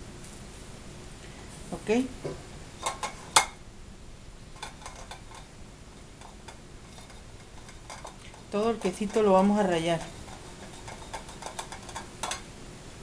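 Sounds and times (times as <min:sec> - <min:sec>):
grater knocking: 0:07.0 - 0:12.4.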